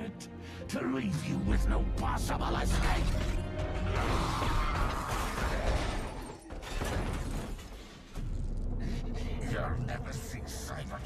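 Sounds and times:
breaking glass: 5.0s - 7.8s.

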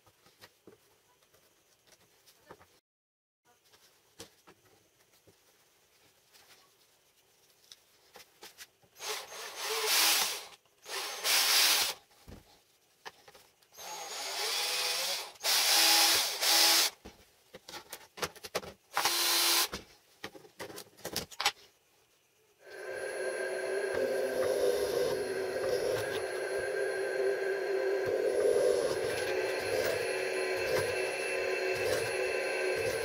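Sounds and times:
cordless drill boring: 9.0s - 12.0s, 13.8s - 17.0s, 18.9s - 19.7s, 22.7s - 33.0s.

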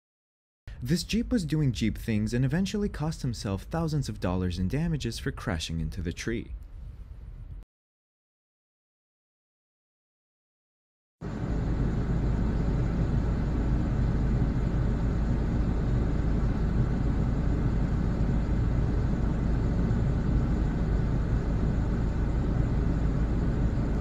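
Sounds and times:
low rumble of street traffic: 11.2s - 24.0s.

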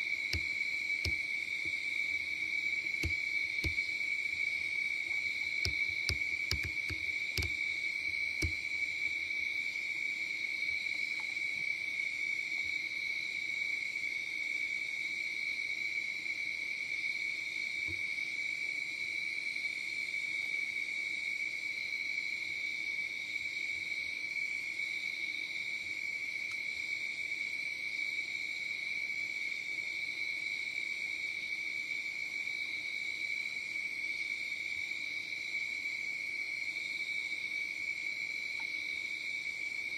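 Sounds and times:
crickets trilling: 0.0s - 39.9s
sharp clicks: 3.0s - 3.8s, 5.7s - 7.6s.

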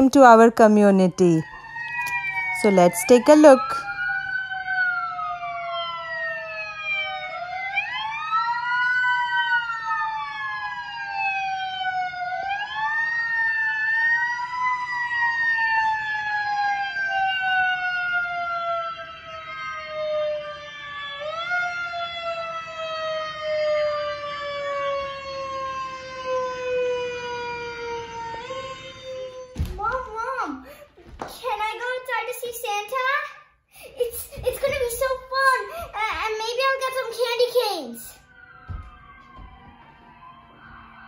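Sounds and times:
fire engine siren winding: 1.0s - 29.6s, 38.2s - 41.0s.

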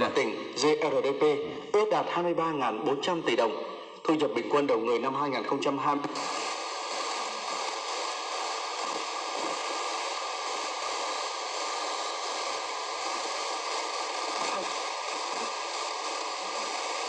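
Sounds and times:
radio static hiss: 0.0s - 1.6s, 5.9s - 17.0s.

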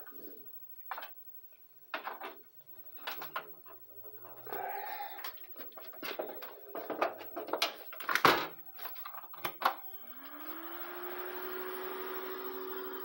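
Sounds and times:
hands handling computer parts: 1.9s - 9.8s
computer fan whirring: 6.6s - 13.0s.

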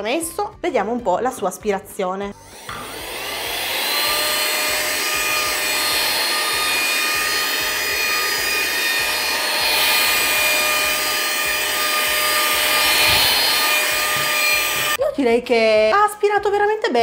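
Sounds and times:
handheld vacuum whining: 2.4s - 15.0s.

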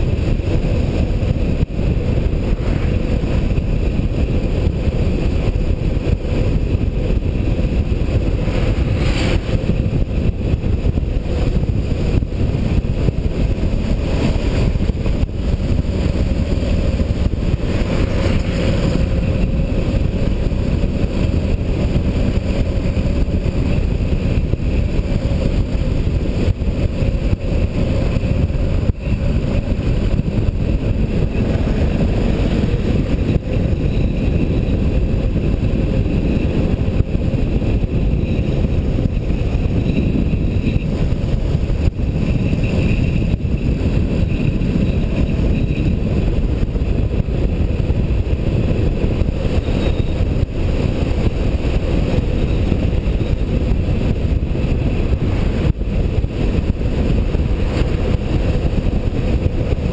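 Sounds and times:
vehicle road and wind noise: 0.0s - 59.9s.

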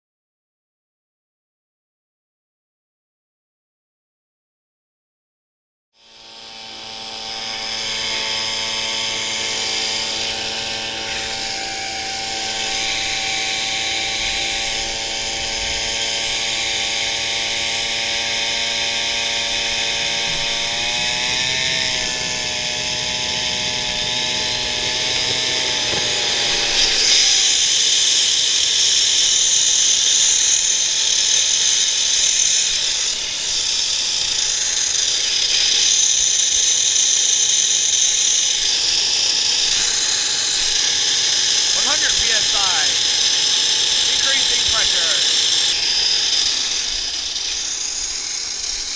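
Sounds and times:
leaf blower engine droning: 6.0s - 48.9s
jet engine whine and hiss: 36.4s - 48.9s.

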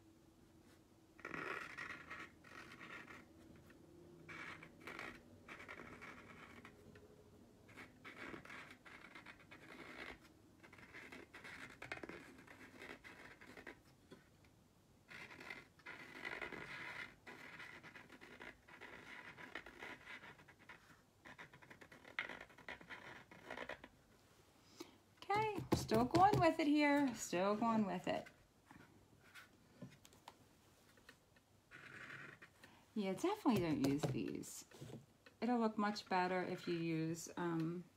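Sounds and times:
pen tip scratching: 1.2s - 3.3s, 4.3s - 6.8s, 33.2s - 34.4s.

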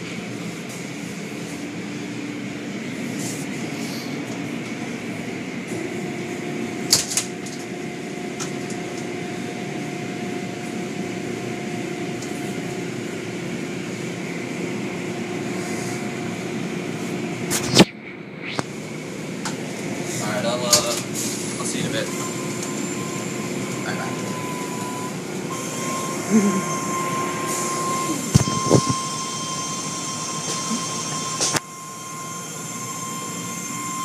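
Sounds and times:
car wash machinery hum: 0.0s - 34.0s.

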